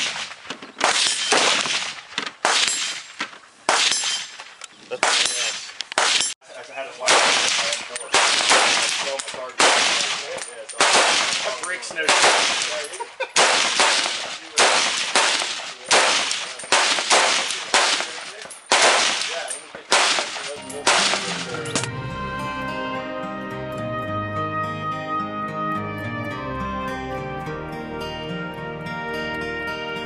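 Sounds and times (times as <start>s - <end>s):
rifle shots: 0.0s - 6.4s, 7.0s - 21.9s.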